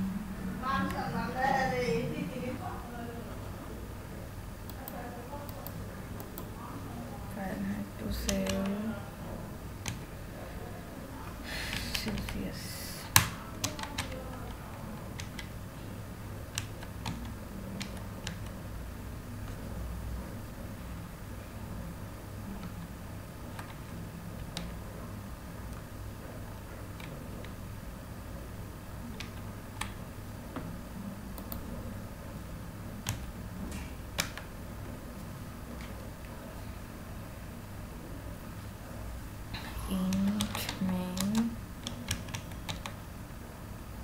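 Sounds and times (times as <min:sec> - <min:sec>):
low steady hum: 0:00.0 - 0:44.0
computer keyboard key clicks: 0:13.1 - 0:14.6, 0:15.2 - 0:15.5, 0:34.2 - 0:34.5, 0:40.1 - 0:43.0.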